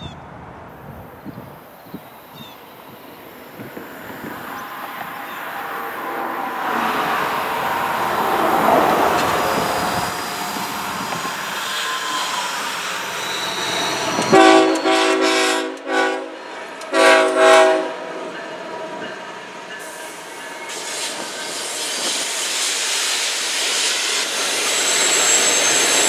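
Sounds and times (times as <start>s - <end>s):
diesel freight train approaching: 0.4s - 26.0s
thin wheel squeal: 9.2s - 15.0s, 20.7s - 26.0s.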